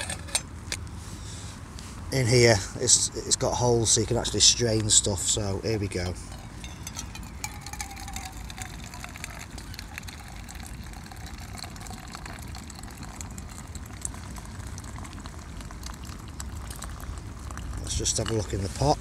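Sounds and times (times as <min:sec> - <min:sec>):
liquid pouring into metal mug: 0:06.3 - 0:18.7.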